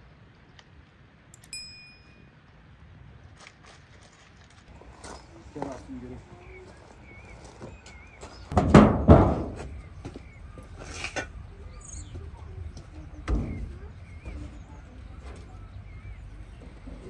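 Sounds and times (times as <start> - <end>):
small birds chirping: 4.7 - 8.6, 9.4 - 17.0.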